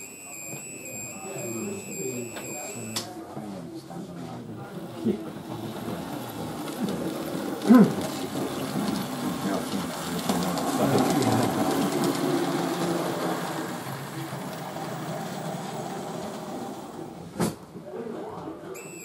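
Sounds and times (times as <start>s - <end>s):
indistinct crowd chatter: 0.0s - 19.0s
model train running on track: 4.4s - 17.5s.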